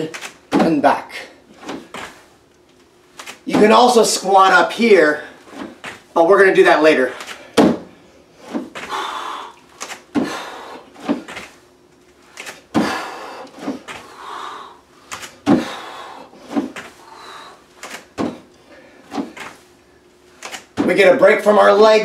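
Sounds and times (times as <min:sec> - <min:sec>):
bare feet thudding on step: 0:03.4 - 0:03.9, 0:07.6 - 0:09.0, 0:10.1 - 0:11.6, 0:12.7 - 0:14.1, 0:15.4 - 0:17.0, 0:18.0 - 0:18.5, 0:19.1 - 0:19.6, 0:20.7 - 0:21.1
hard breathing: 0:07.2 - 0:11.3, 0:12.7 - 0:17.8.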